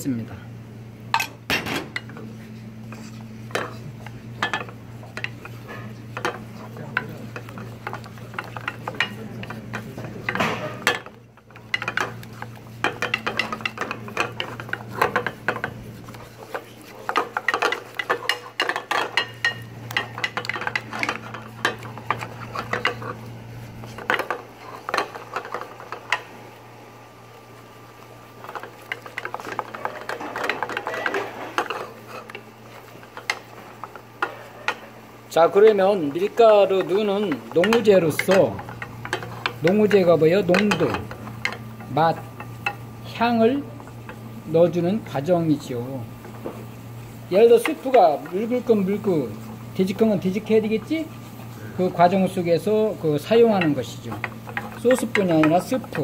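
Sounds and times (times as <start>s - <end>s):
steady low hum: 0.0s - 56.0s
wooden spatula scraping saucepan: 2.9s - 26.3s, 28.4s - 42.8s.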